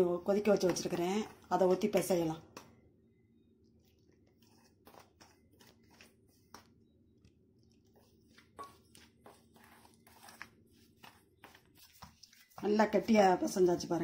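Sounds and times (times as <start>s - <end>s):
dough mixed by hand in steel bowl: 7.4s - 14.0s.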